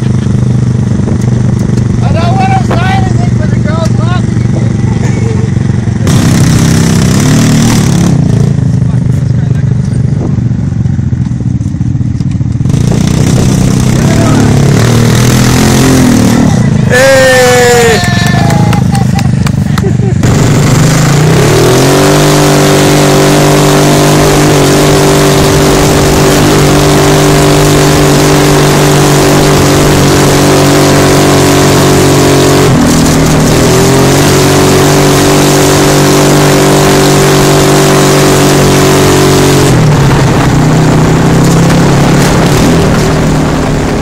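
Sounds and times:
dune buggy engine running: 0.0 - 44.0.

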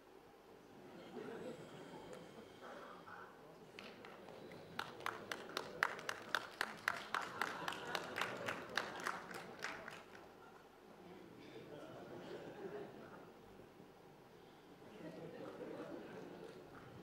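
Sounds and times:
faint murmur of voices: 0.0 - 17.0
audience clapping: 3.6 - 10.3.

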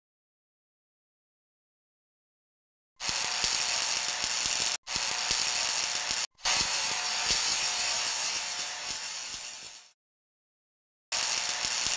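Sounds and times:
hissing crackle with clicks: 3.0 - 10.0, 11.2 - 11.9.

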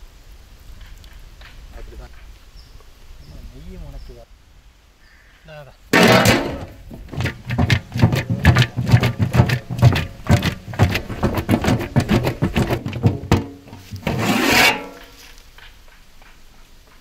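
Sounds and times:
food rattling in shaken metal pot: 6.0 - 15.1
rasping scrape: 6.0 - 15.4.

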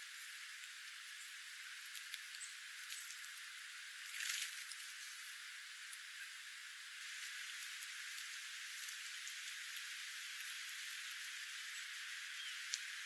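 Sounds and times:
steady outdoor hiss: 0.0 - 13.0
faint ticks: 1.8 - 6.3, 7.0 - 13.0.

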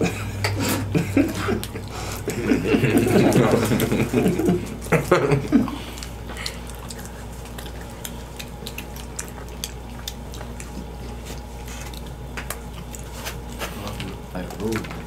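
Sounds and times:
low steady hum: 0.0 - 15.0
people chewing: 0.0 - 15.0.

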